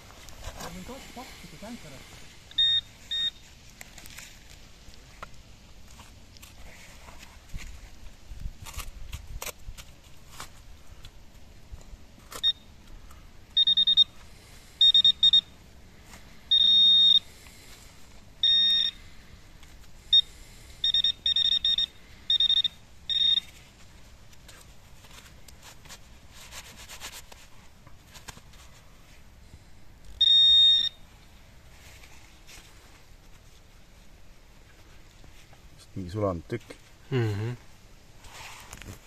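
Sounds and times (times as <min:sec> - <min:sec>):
soil scraping: 0:00.0 - 0:02.4, 0:38.2 - 0:39.0
metal detector beeping: 0:01.4 - 0:03.4, 0:12.3 - 0:12.7, 0:13.5 - 0:15.6, 0:16.5 - 0:17.4, 0:18.4 - 0:19.1, 0:20.0 - 0:23.7, 0:30.1 - 0:31.0.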